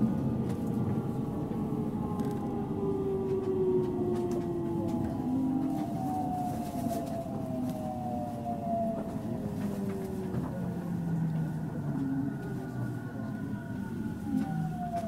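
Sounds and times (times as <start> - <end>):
train rumbling running noise: 0.0 - 15.0.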